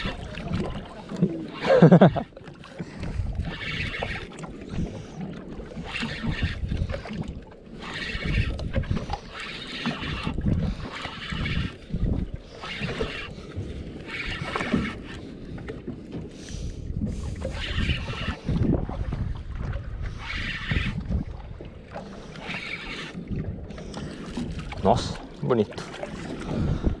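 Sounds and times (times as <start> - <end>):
wind and water: 0.0 - 27.0
fishing reel cranking: 3.2 - 4.8, 5.8 - 7.1, 7.7 - 11.9, 12.5 - 13.4, 14.0 - 15.2, 17.4 - 18.6, 20.2 - 21.0, 22.3 - 23.2.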